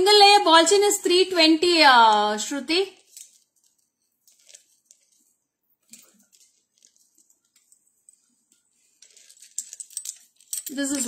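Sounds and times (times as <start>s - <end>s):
soft handling clicks and rustles: 3.0s - 11.0s.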